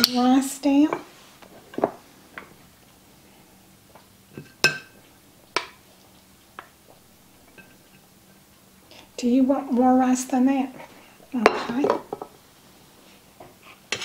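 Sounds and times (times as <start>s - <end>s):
spoon clinking against pot: 4.4s - 5.0s.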